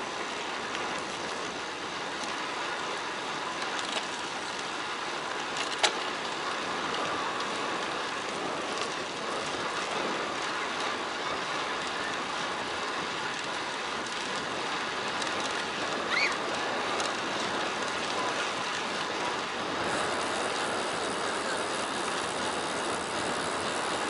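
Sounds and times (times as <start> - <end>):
bike tyres rolling on asphalt: 0.0 - 24.0
wind rushing over microphone: 6.1 - 24.0.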